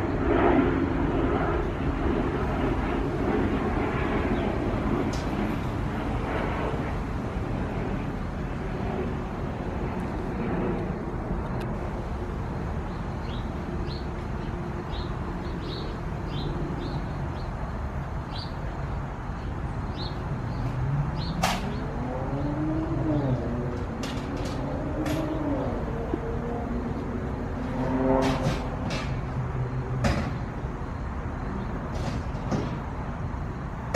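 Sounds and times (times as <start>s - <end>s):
low traffic rumble: 0.0s - 33.9s
small birds chirping: 12.8s - 23.6s
vehicle engine passing: 20.0s - 30.7s.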